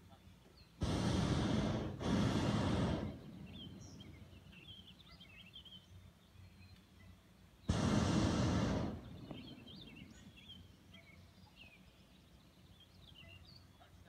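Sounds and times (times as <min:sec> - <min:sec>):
birds chirping: 0:00.0 - 0:14.0
propane burner blasts: 0:00.8 - 0:05.0, 0:07.6 - 0:10.8.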